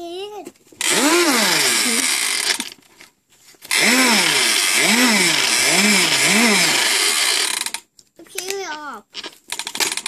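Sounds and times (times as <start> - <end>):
toy engine sound effect revving: 0.8 - 2.7, 3.7 - 7.8.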